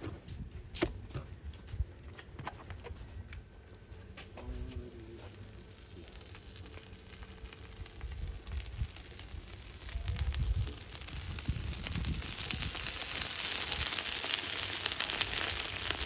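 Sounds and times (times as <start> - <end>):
meat sizzling in a pan: 5.5 - 16.0.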